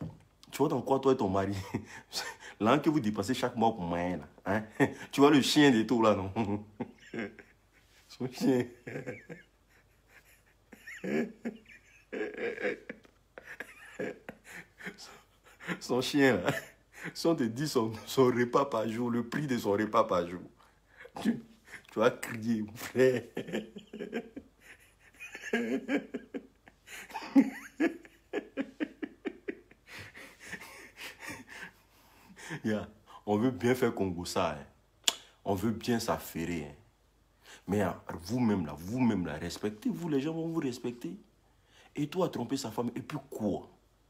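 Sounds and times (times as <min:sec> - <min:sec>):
man laughing: 0:01.4 - 0:02.6, 0:04.5 - 0:32.8.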